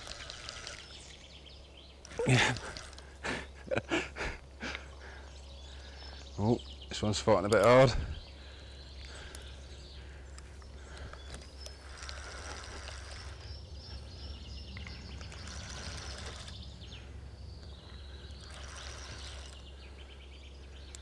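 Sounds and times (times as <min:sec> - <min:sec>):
birds chirping and singing: 0:00.0 - 0:21.0
steady low hum: 0:00.0 - 0:21.0.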